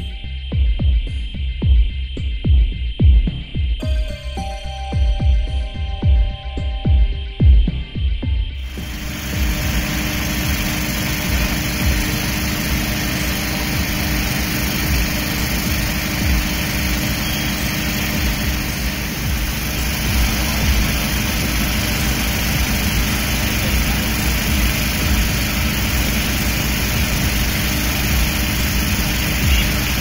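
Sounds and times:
fire truck engine running: 8.6 - 30.0.

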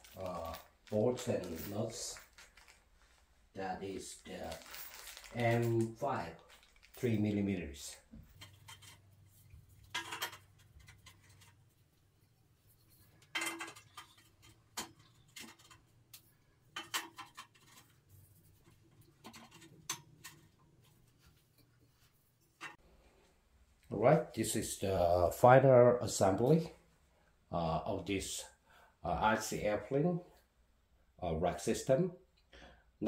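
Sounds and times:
metal hardware clicking and knocking: 9.8 - 11.6, 13.2 - 15.9, 16.7 - 17.9.

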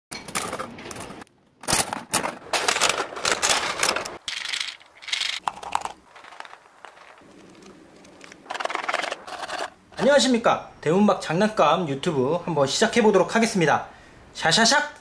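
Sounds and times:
plastic capsules rustling: 2.5 - 9.8.

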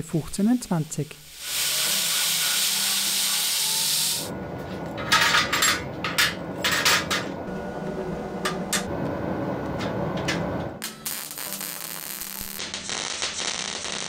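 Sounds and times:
belt grinder grinding steel: 1.3 - 4.3.

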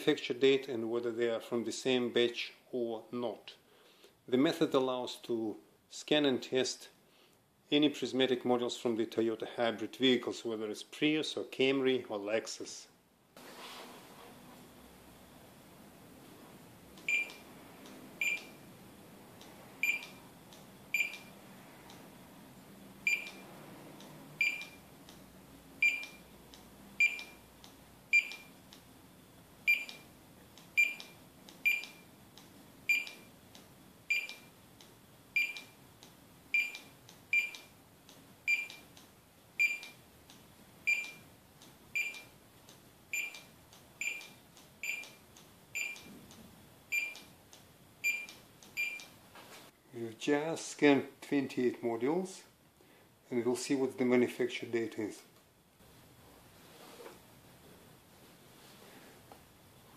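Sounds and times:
barcode scanner beeping: 17.0 - 17.4, 18.2 - 18.6, 19.8 - 20.3, 20.9 - 21.4, 23.0 - 23.5, 24.4 - 24.9, 25.8 - 26.3, 27.0 - 27.4, 28.1 - 28.6, 29.7 - 30.1, 30.7 - 32.1, 32.9 - 33.3, 34.1 - 34.5, 35.4 - 35.8, 36.5 - 37.8, 38.5 - 38.9, 39.6 - 40.0, 40.9 - 41.3, 42.0 - 42.3, 43.1 - 45.2, 45.8 - 46.1, 46.9 - 47.3.

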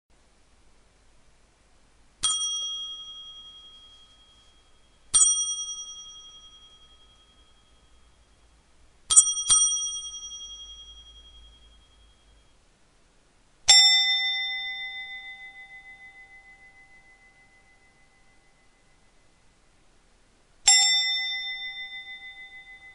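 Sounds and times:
table bell ringing: 2.2 - 8.4, 9.1 - 12.5, 13.7 - 18.9, 20.6 - 22.9.

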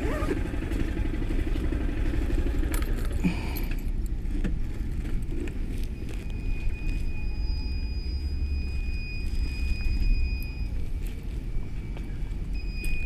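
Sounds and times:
motorcycle engine idling: 0.0 - 4.4.

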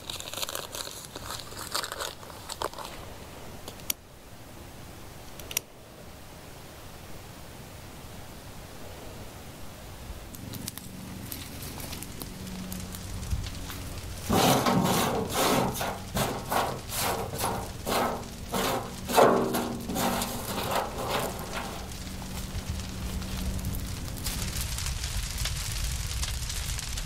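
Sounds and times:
sticks rustling: 10.5 - 24.6
sticks scraping plastic tub: 14.2 - 22.0.

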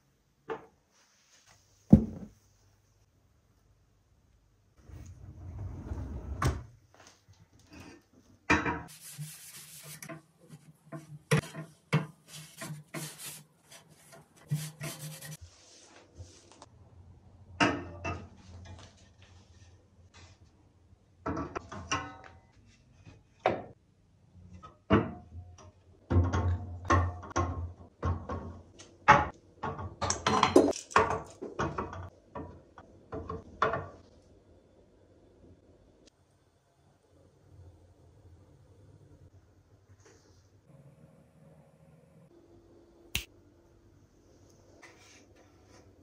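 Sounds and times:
cloth rubbing on shelf: 8.9 - 10.7.

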